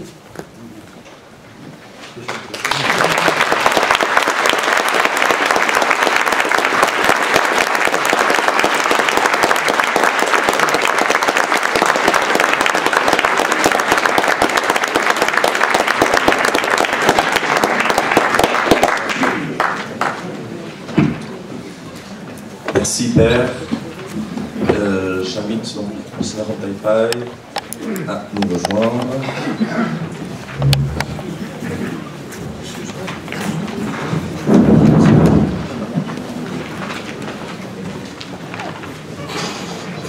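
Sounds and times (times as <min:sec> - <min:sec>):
audience applauding: 0:02.2 - 0:20.6.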